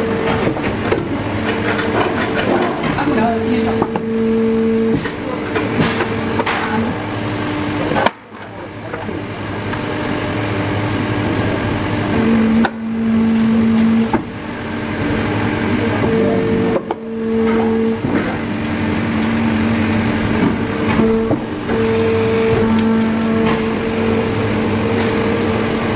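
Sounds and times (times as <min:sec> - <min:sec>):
injection moulding machine running: 0:00.0 - 0:25.9
low pitched hum: 0:00.0 - 0:25.9.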